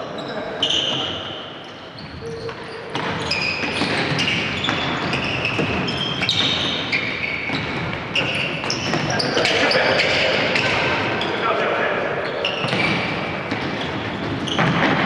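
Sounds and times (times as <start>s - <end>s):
shoes squeaking on gym floor: 0.0s - 11.4s, 12.2s - 15.0s.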